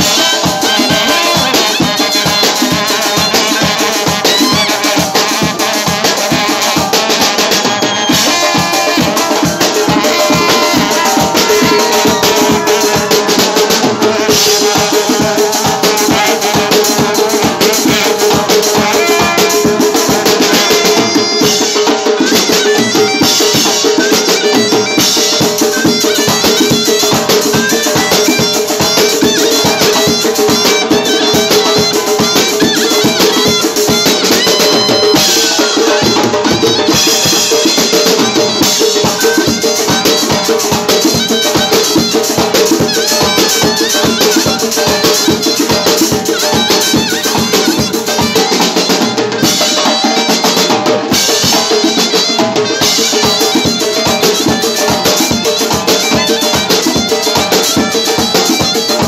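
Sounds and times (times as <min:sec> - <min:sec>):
clarinet melody: 0:00.0 - 0:59.0
drum kit: 0:00.0 - 0:59.0
frame drum: 0:00.0 - 0:59.0
large barrel drum: 0:00.0 - 0:59.0.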